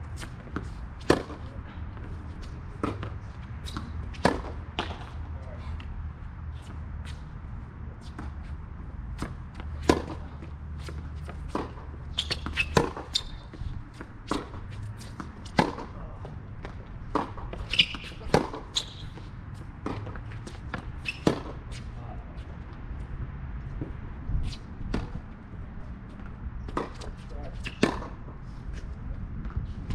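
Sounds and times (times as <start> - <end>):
racket striking tennis ball: 0.2 - 1.4, 2.8 - 5.2, 9.2 - 16.0, 17.0 - 19.2, 19.8 - 21.6, 26.7 - 28.2
distant racket hits: 0.2 - 5.2, 8.0 - 21.9, 26.2 - 29.7
tennis ball bouncing: 0.2 - 5.2, 9.1 - 16.0, 16.6 - 21.8, 26.2 - 28.3.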